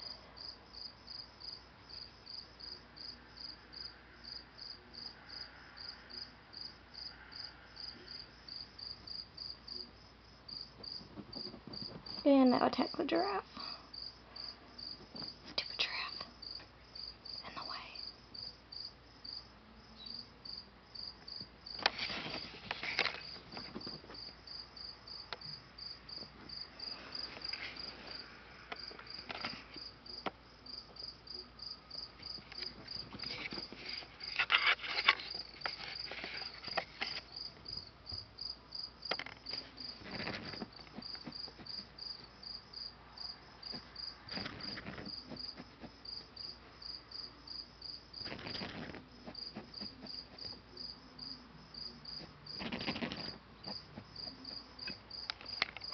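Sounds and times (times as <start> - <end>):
rabbit scratching fabric: 21.8 - 24.3, 32.2 - 37.3, 39.5 - 42.3, 43.7 - 46.7, 48.1 - 50.8, 52.1 - 54.6.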